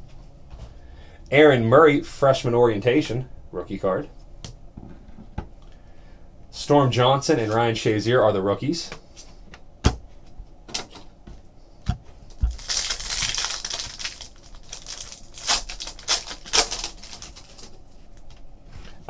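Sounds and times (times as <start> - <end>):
foil wrapper crinkling: 12.2 - 18.4.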